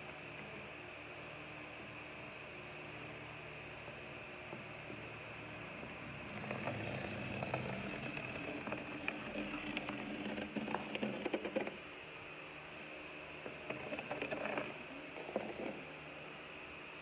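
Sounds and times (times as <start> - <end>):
dividers scraping textured drywall: 6.3 - 11.8, 13.6 - 15.9.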